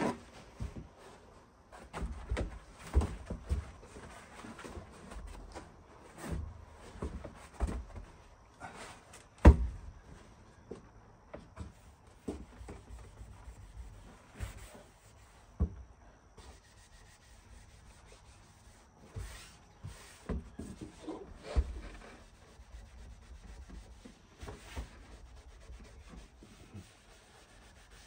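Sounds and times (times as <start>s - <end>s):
sponge scrubbing a surface: 12.5s - 15.5s, 16.4s - 28.0s.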